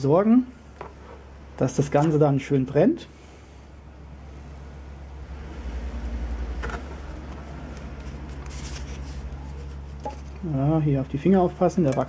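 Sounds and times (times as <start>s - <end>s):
passing vehicle rumble: 3.9s - 9.9s.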